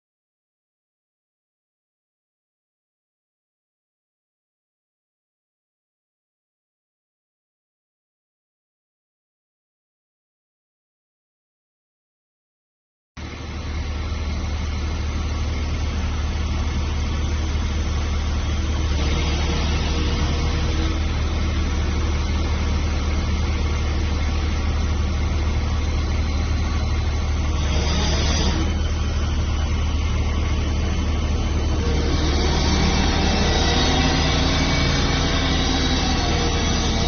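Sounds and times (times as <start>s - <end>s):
diesel engine idling: 13.2s - 37.0s.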